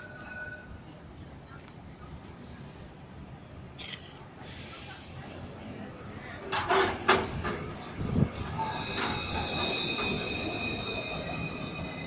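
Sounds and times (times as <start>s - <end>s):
tram wheel squeal: 0.0s - 1.0s, 4.4s - 12.0s
tram clattering knocks: 6.4s - 11.2s.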